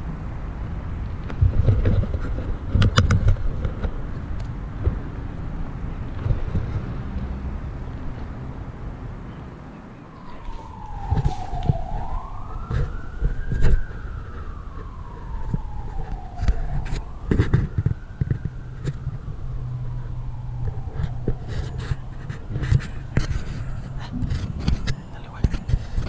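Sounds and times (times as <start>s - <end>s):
siren wailing: 9.4s - 26.0s
knocks and rustles: 20.6s - 26.0s.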